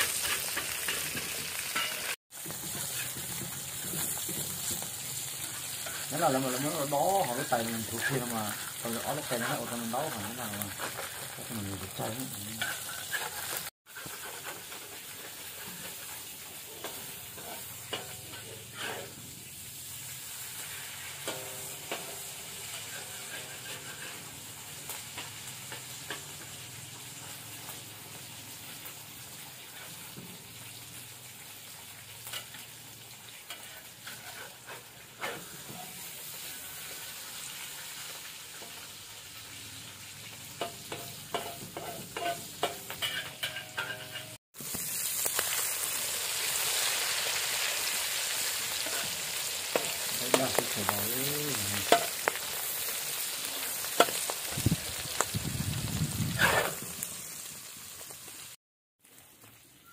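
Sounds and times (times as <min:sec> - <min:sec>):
metal spatula scraping pan: 0:00.0 - 0:19.3, 0:20.6 - 0:26.6, 0:33.4 - 0:36.8, 0:40.6 - 0:44.4, 0:48.2 - 0:54.3, 0:56.3 - 0:56.9
eggs sizzling in oil: 0:00.0 - 0:59.9.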